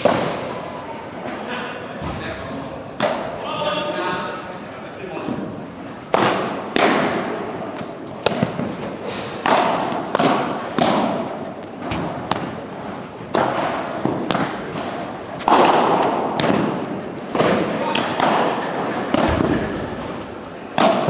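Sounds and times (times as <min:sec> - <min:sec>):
paddles striking ball: 0:06.1 - 0:12.7, 0:13.3 - 0:21.0
ball bouncing on court: 0:08.2 - 0:08.8, 0:13.3 - 0:20.2, 0:20.8 - 0:21.0.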